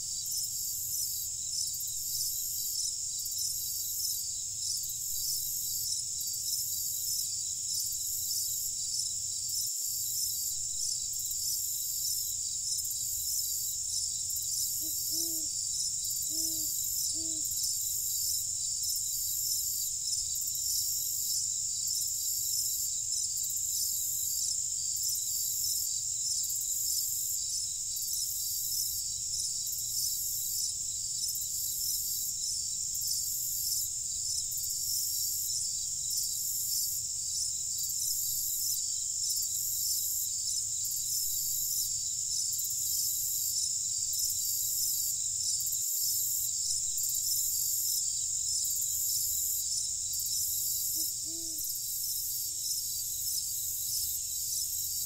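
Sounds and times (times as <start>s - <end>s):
crickets trilling: 0.0s - 55.0s.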